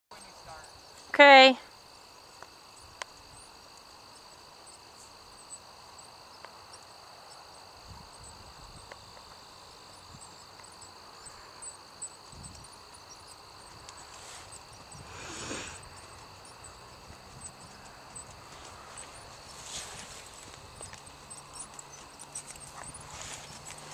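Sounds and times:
high insect chirring: 0:00.1 - 0:23.9
horse hooves trotting on dirt: 0:06.1 - 0:23.9.

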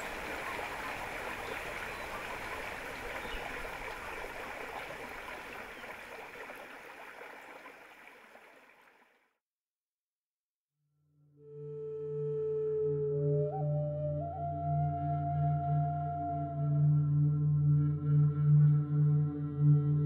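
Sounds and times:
running water rushing: 0:00.0 - 0:09.2.

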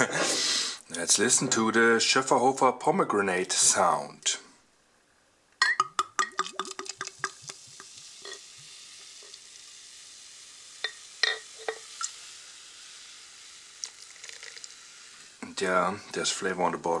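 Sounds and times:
foam fizzing: 0:06.4 - 0:15.5.

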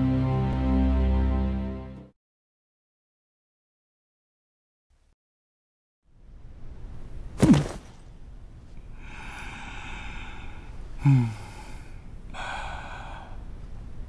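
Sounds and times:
person breathing hard: 0:08.8 - 0:13.7
person grunting: 0:11.0 - 0:11.8.

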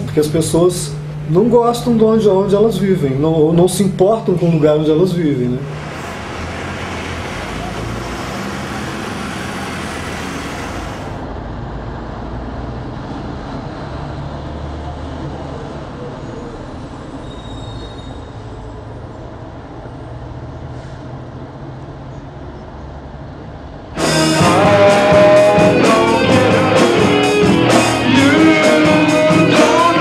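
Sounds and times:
city traffic rumble: 0:05.6 - 0:17.2
hiss: 0:05.7 - 0:11.3.

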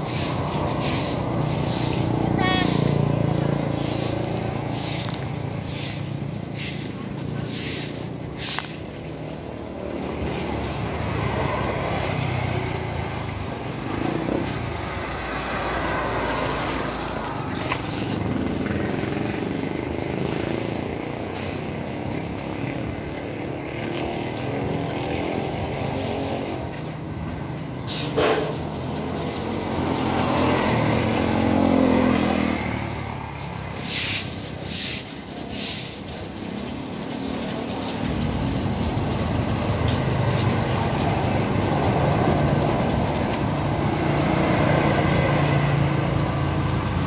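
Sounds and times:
broom scraping wet concrete: 0:00.0 - 0:10.5, 0:15.9 - 0:22.3, 0:33.6 - 0:38.2
street traffic passing: 0:00.0 - 0:47.0.

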